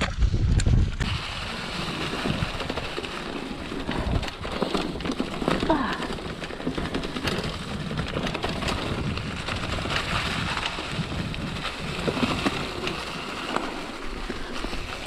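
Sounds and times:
bike clicks and rattles: 0.0 - 15.0
bike tyres rolling over leaves: 0.0 - 15.0.

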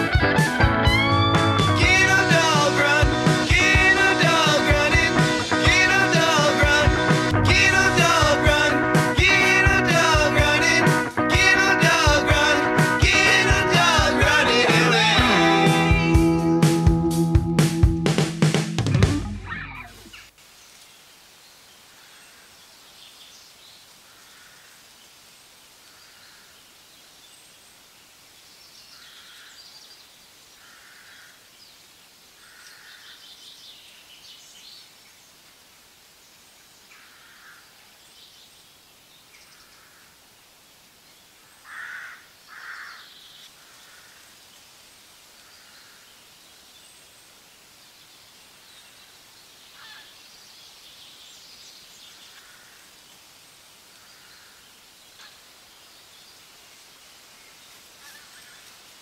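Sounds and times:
birds chirping: 0.0 - 16.6
faint steady hiss: 0.0 - 59.0.

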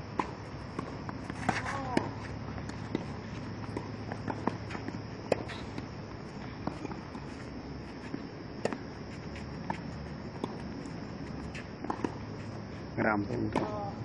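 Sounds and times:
tennis ball bouncing: 0.2 - 12.6, 13.4 - 14.0
racket striking tennis ball: 11.5 - 12.2, 13.5 - 13.8.

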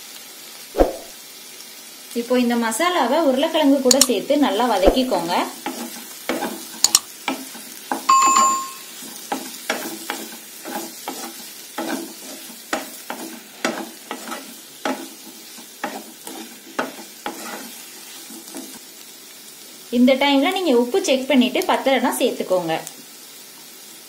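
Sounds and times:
light sizzle of frying: 0.0 - 24.0
sharp click: 3.9 - 4.1, 6.8 - 7.1
spatula scraping pan: 4.9 - 8.1, 9.0 - 18.8
short clear ringing tone: 8.1 - 8.9.

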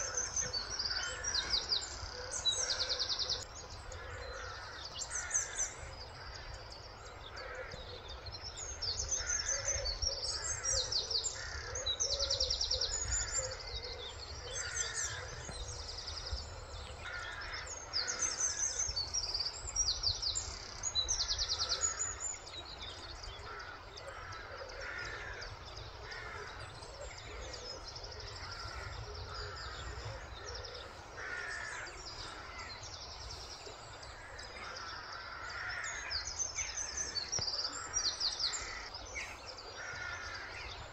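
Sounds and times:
birds chirping and trilling: 0.0 - 40.9.

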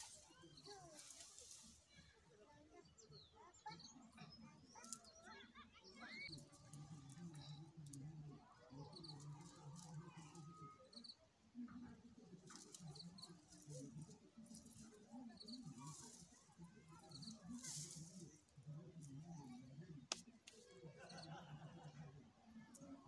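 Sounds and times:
plants rustling and crackling: 0.0 - 2.3, 6.3 - 8.1, 8.8 - 11.0, 12.1 - 20.9.

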